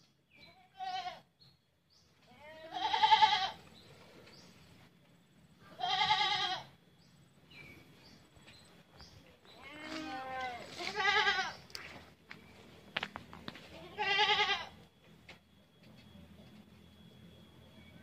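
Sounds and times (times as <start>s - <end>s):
goat bleating: 0.4s - 1.3s, 2.2s - 3.7s, 5.6s - 6.8s, 9.5s - 11.8s, 13.6s - 14.9s.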